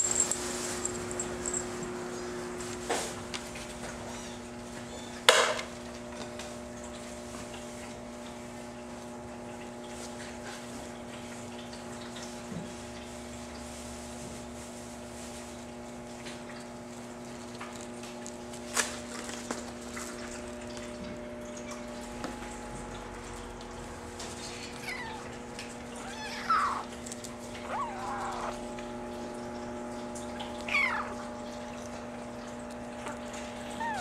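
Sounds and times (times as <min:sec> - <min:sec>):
humidifier humming: 0:00.0 - 0:34.0
water trickling and dripping: 0:01.1 - 0:34.0
kitten mewing: 0:24.5 - 0:28.8, 0:30.6 - 0:31.4, 0:33.6 - 0:34.0.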